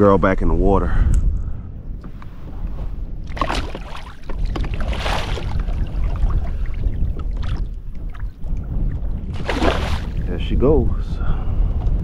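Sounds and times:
wind rumbling on microphone: 0.0s - 12.0s
water sloshing and splashing: 3.2s - 10.4s.

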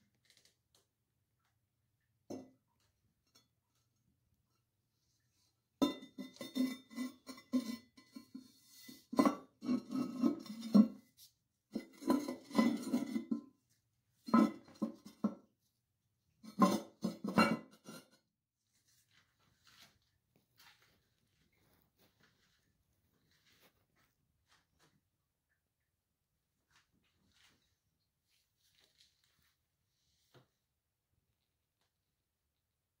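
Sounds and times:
hard objects clattering on porcelain: 5.8s - 11.0s, 11.7s - 13.5s, 14.2s - 15.5s, 16.5s - 18.2s.

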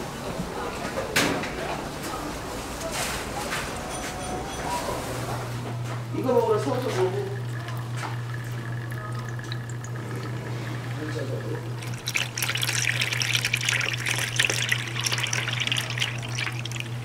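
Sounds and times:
liquid pouring into a cup: 6.2s - 17.0s.

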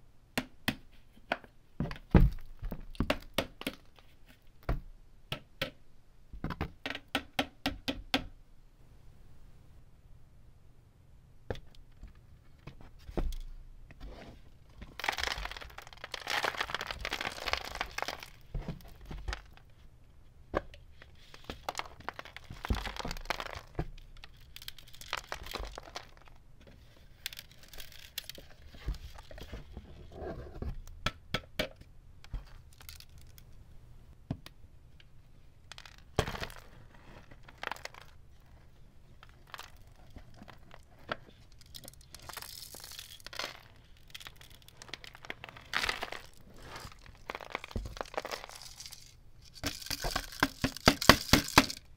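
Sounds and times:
plastic bin clicking and knocking: 49.6s - 51.8s.

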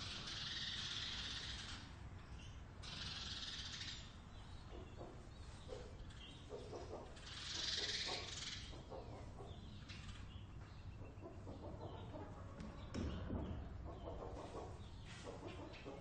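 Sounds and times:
chickens clucking: 3.8s - 16.0s.

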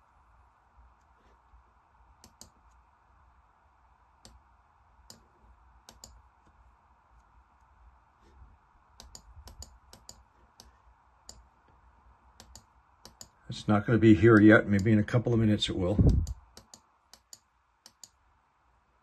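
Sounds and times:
low steady hum: 0.0s - 19.0s
computer mouse clicks: 2.2s - 2.8s, 4.2s - 4.4s, 5.0s - 6.6s, 9.0s - 11.8s, 12.4s - 13.4s, 16.0s - 18.2s.

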